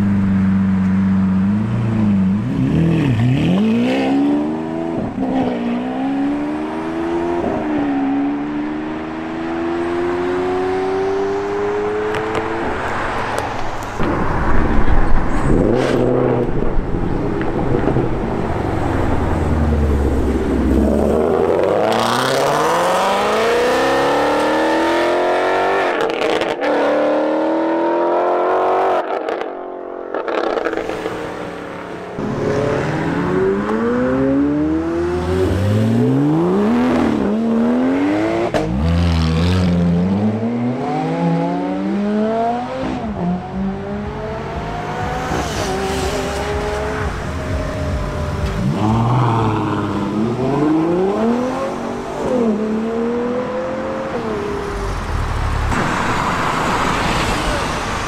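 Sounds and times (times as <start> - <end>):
car engine accelerating: 14.3 - 58.0.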